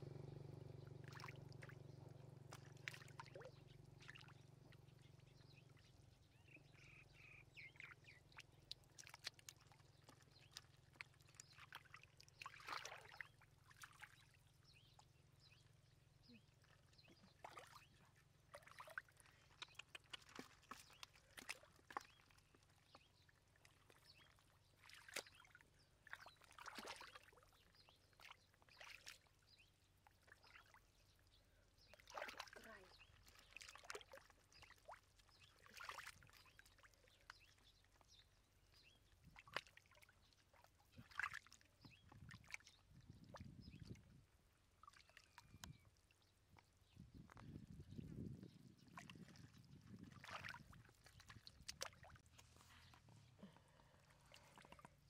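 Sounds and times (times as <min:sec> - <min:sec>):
hands splashing in muddy water: 0:02.4 - 0:04.3, 0:08.2 - 0:14.2, 0:18.5 - 0:23.0, 0:24.8 - 0:27.4, 0:31.9 - 0:36.6, 0:40.8 - 0:43.5, 0:48.9 - 0:55.0.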